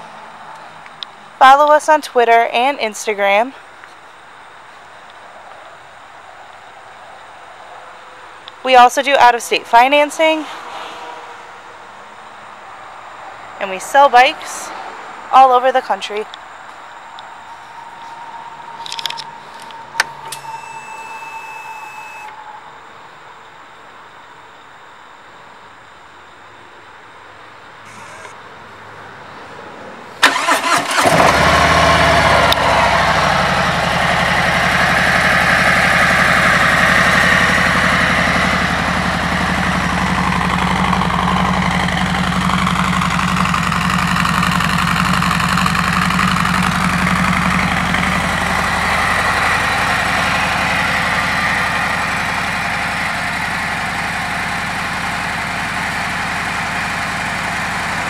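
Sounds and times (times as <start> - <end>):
motorcycle engine idling: 32.7 - 58.0.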